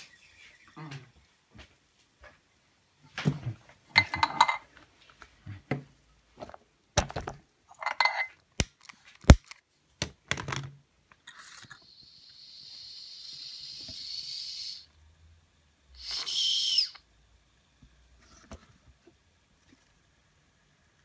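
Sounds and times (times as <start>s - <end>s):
steady high hiss: 11.6s - 21.0s.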